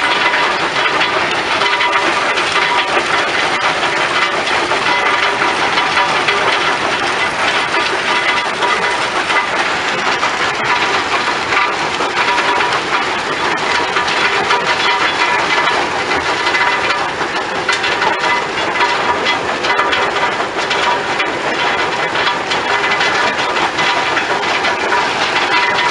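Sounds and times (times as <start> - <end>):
crushing machinery din: 0.0 - 25.9.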